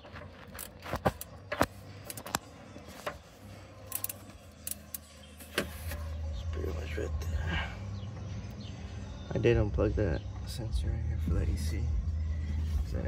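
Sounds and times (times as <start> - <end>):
hands clicking among engine hoses: 0.0 - 3.3, 3.9 - 5.7.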